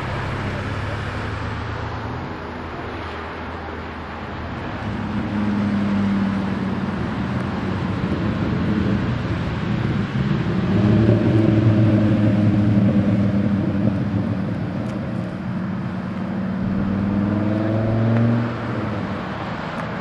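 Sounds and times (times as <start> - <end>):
traffic noise: 0.0 - 20.0
vehicle passing: 15.2 - 20.0.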